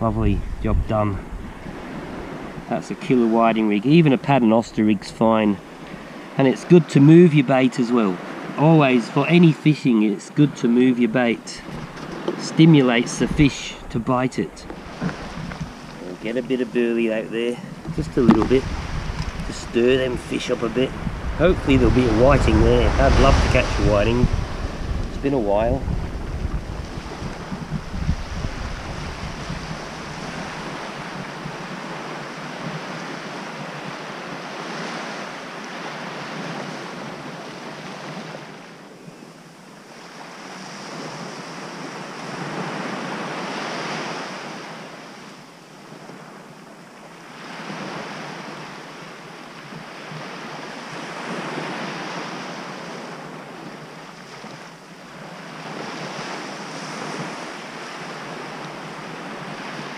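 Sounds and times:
wind on microphone: 0.0 - 3.4, 11.5 - 35.3
waves breaking on beach: 0.0 - 59.9.

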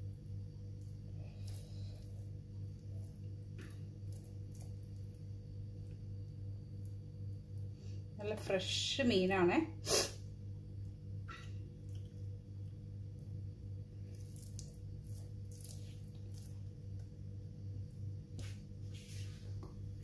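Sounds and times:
low electrical hum: 0.0 - 20.0
hands squishing paste on fish: 14.1 - 17.1.

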